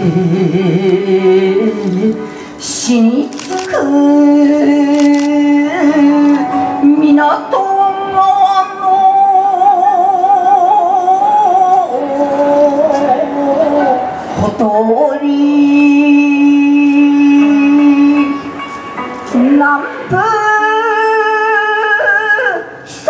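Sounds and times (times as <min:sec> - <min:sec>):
solo voice singing with vibrato: 0:00.0 - 0:18.4.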